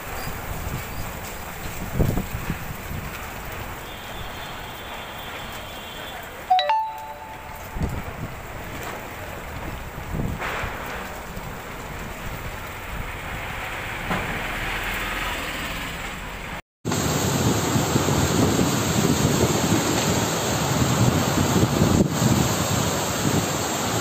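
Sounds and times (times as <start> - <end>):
heavy rain pouring: 0.0 - 6.4, 7.7 - 15.2, 16.9 - 24.0
gusty wind on microphone: 0.4 - 3.1, 16.9 - 24.0.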